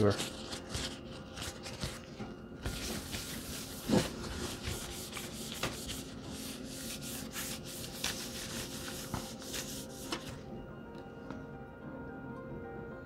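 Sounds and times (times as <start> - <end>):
wet wipe rubbing glass screen: 2.8 - 10.3.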